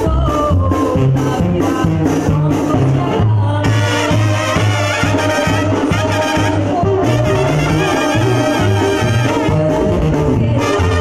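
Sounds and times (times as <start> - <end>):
woman singing into a microphone: 0.0 - 5.0, 5.9 - 11.0
trumpets and brass playing: 3.6 - 11.0.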